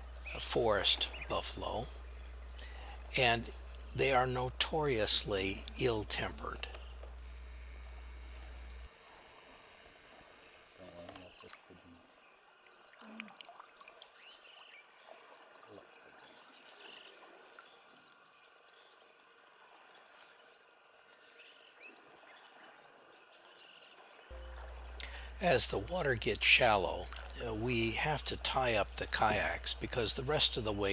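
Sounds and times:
high-pitched insect drone: 0:00.0 - 0:30.9
faint short calls: 0:24.3 - 0:30.7.

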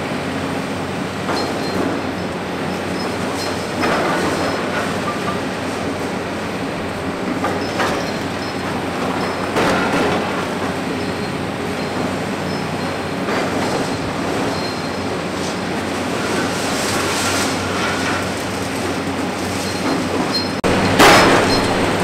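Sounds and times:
excavator engine and scraping: 0:00.0 - 0:22.0.

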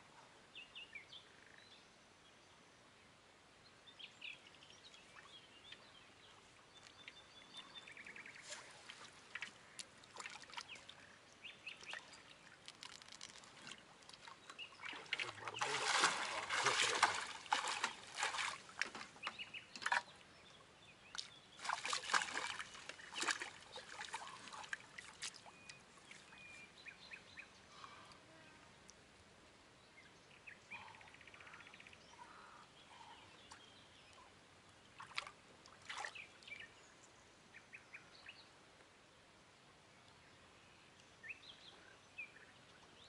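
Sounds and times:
small birds chirping: 0:03.8 - 0:29.0, 0:29.8 - 0:35.2, 0:35.9 - 0:38.6
fish splashing in water: 0:14.8 - 0:19.0, 0:21.6 - 0:25.4.

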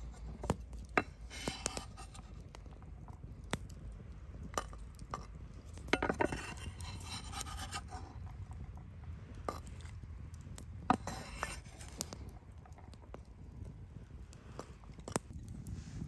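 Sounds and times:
knife scraping on cutting board: 0:01.0 - 0:02.2, 0:06.0 - 0:08.1, 0:10.9 - 0:11.9.

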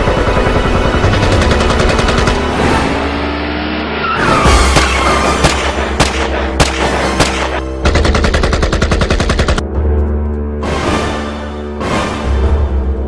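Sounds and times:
gunshots: 0:00.0 - 0:02.7, 0:04.6 - 0:09.6
background music: 0:00.0 - 0:13.0.

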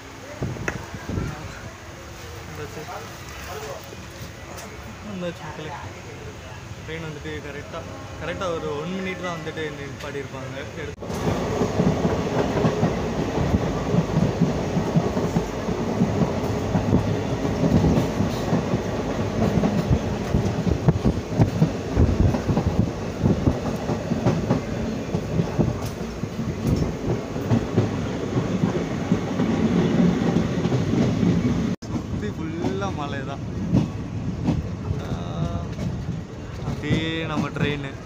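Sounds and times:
train rumbling: 0:00.0 - 0:38.0
wind buffeting microphone: 0:00.3 - 0:01.7, 0:11.0 - 0:37.6
wheels clattering on rails: 0:11.0 - 0:38.0.

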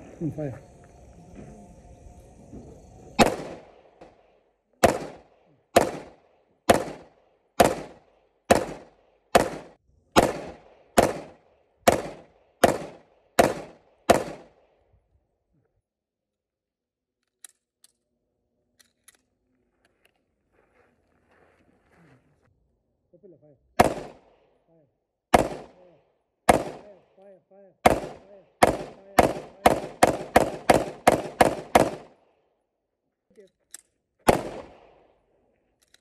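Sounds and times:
pistol shots: 0:03.2 - 0:14.7, 0:23.8 - 0:24.5, 0:25.3 - 0:25.9, 0:26.5 - 0:27.2, 0:27.8 - 0:32.2, 0:34.3 - 0:35.2.

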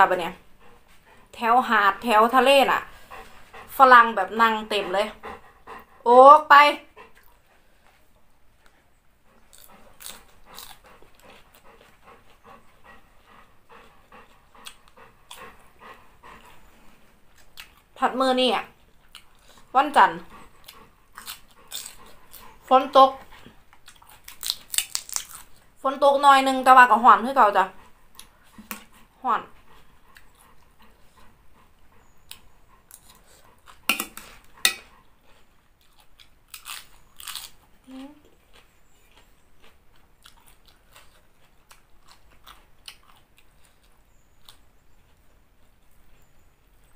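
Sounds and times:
dog panting: 0:00.0 - 0:24.4, 0:25.7 - 0:36.3
crunching and chewing salad: 0:07.0 - 0:18.0, 0:18.6 - 0:25.8, 0:26.4 - 0:46.9
fork scraping on plate: 0:33.9 - 0:34.9.

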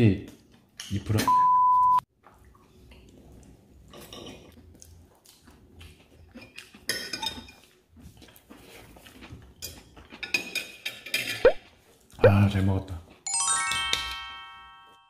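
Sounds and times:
cutlery clinking on ceramic plate: 0:09.6 - 0:11.4.

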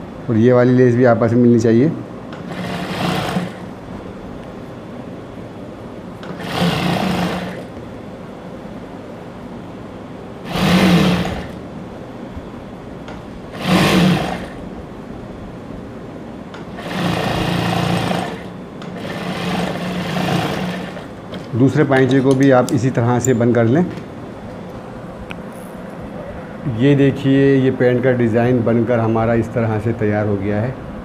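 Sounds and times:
steady machine hum: 0:00.0 - 0:31.0
sewing machine stitching: 0:02.4 - 0:03.7, 0:06.2 - 0:07.7, 0:10.4 - 0:11.6, 0:13.5 - 0:14.6, 0:16.6 - 0:21.5.

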